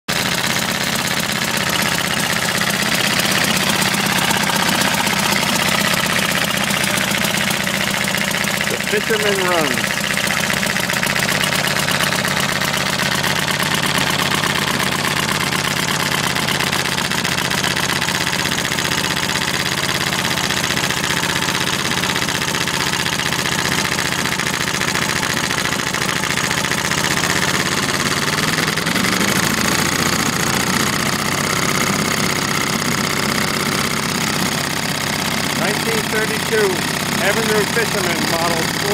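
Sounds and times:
outboard motor running: 0.1s - 38.9s.

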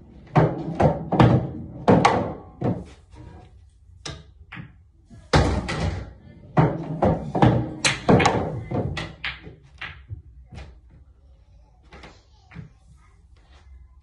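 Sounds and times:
pool balls clacking: 0.0s - 11.0s
cue striking ball: 6.6s - 10.1s.

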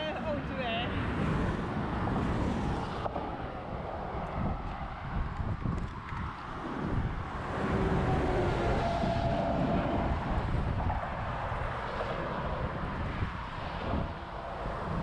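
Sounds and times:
motorway traffic: 0.0s - 15.0s
wind buffeting microphone: 0.0s - 15.0s
lorry passing by: 6.2s - 15.0s.

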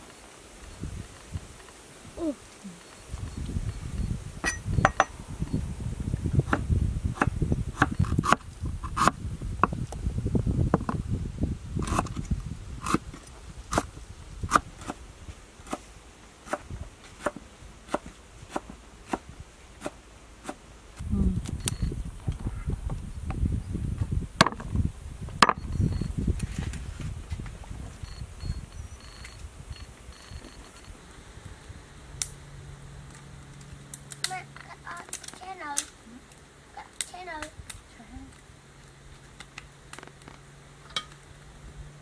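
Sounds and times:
low rumble: 3.0s - 14.4s.

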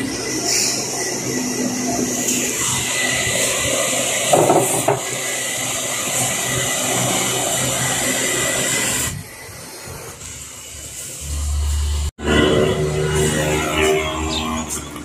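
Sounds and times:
cooler fan rushing: 0.0s - 12.1s
thin steady whine: 0.0s - 15.0s
clatter of knocks: 4.3s - 5.1s.

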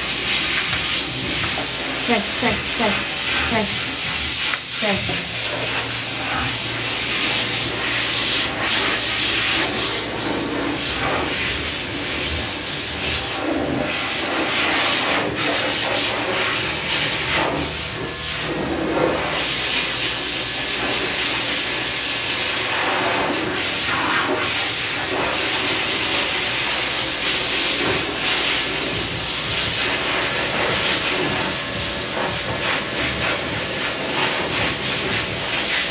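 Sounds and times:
electric clipper humming: 0.0s - 35.9s.

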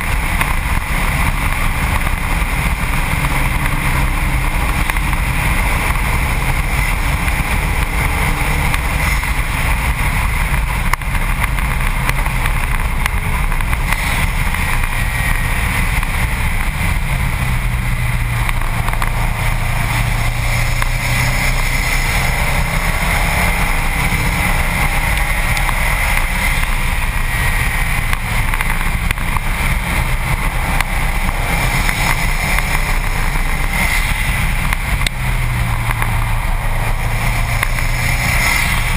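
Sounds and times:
car engine revving: 0.0s - 38.9s
road noise: 0.0s - 38.9s
wind noise: 0.0s - 38.9s.

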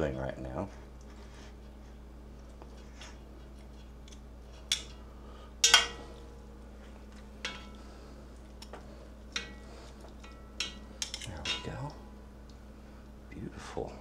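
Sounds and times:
metal tongs clinking on pot: 5.6s - 6.2s, 7.4s - 7.9s, 9.3s - 12.0s.

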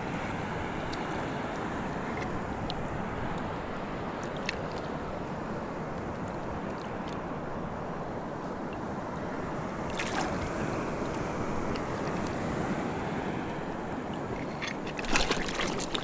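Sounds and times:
wind: 0.0s - 16.0s
sea water washing: 5.9s - 16.0s.

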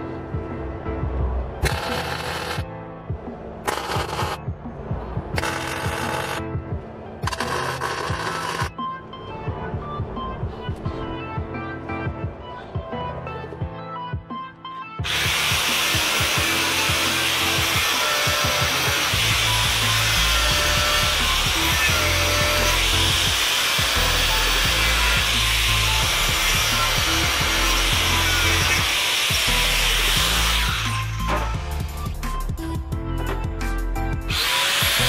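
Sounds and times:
background music: 0.0s - 35.0s
angle grinder grinding steel: 1.6s - 2.6s, 3.7s - 4.4s, 5.4s - 6.4s, 7.2s - 8.7s, 15.0s - 31.6s, 34.3s - 35.0s.

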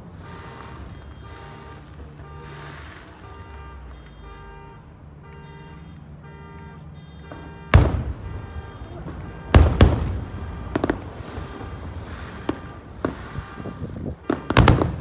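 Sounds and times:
fireworks booming: 0.0s - 15.0s
fireworks crackling: 0.0s - 15.0s.

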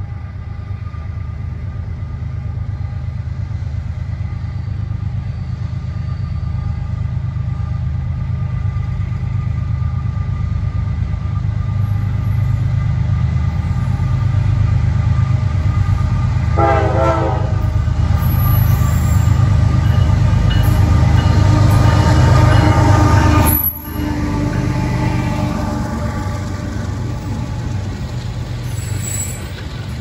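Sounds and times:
diesel locomotive engine rumbling: 0.0s - 30.0s
train horn blast: 16.5s - 17.7s, 21.0s - 26.9s.

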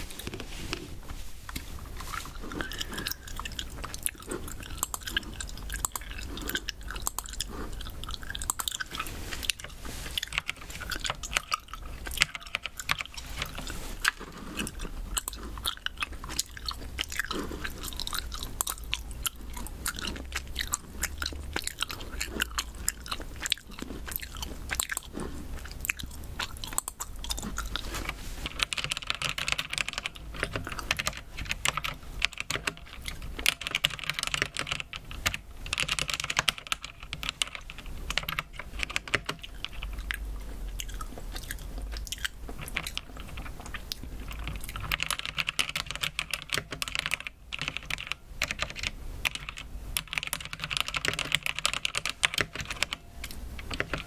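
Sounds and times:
wet chewing of gummy candy: 0.0s - 48.0s
mechanical keyboard keys clicking: 28.5s - 40.0s, 44.3s - 53.0s, 53.6s - 54.0s.

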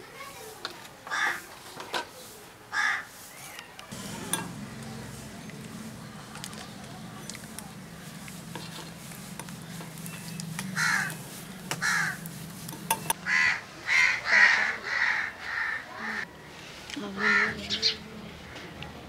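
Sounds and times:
crow cawing: 2.8s - 3.1s, 10.7s - 12.3s, 13.2s - 16.2s, 17.2s - 17.6s.

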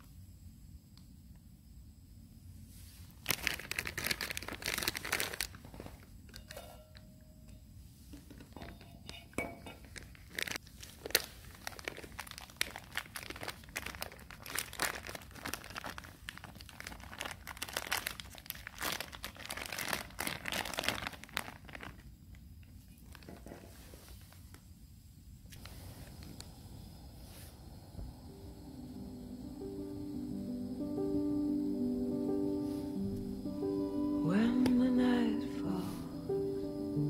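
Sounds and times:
plastic packaging crinkling: 3.0s - 7.1s, 8.2s - 24.6s.

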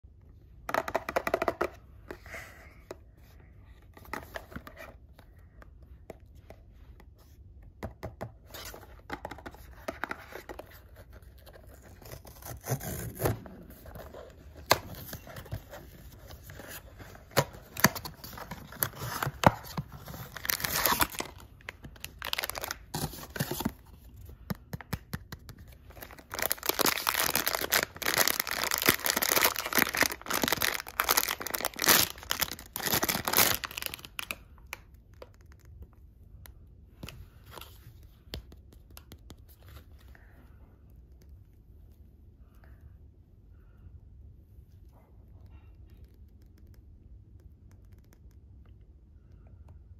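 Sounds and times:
foil bag crinkling: 22.0s - 23.0s, 26.0s - 34.3s.

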